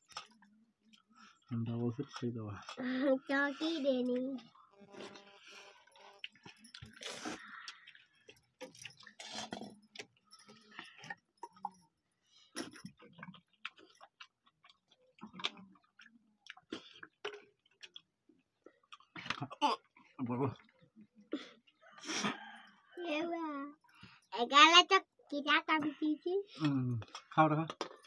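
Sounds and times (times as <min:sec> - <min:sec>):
chewing smacks: 0:06.0 - 0:11.7, 0:12.9 - 0:20.8.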